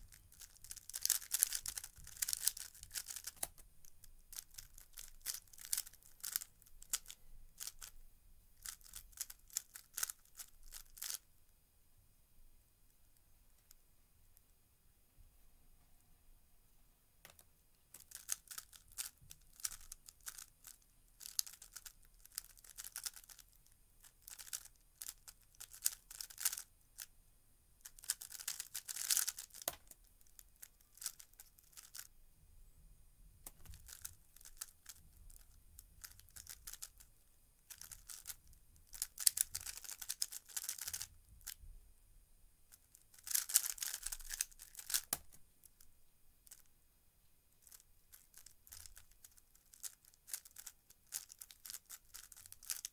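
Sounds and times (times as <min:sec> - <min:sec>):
plastic puzzle cube clicking: 0:00.3 - 0:08.0, 0:08.6 - 0:11.2, 0:17.3 - 0:23.5, 0:24.1 - 0:27.1, 0:27.8 - 0:32.1, 0:33.4 - 0:37.0, 0:37.7 - 0:41.6, 0:42.9 - 0:45.4, 0:47.6 - 0:52.9.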